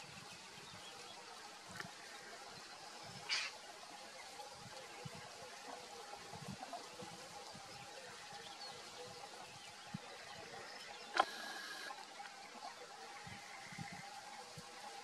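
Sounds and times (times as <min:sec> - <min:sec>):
steady hiss: 0:00.0 - 0:15.0
faint steady hum: 0:10.1 - 0:15.0.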